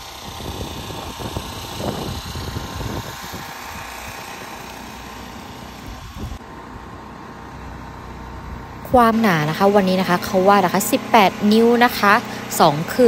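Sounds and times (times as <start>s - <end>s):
wind rumbling on microphone: 0.0s - 6.4s.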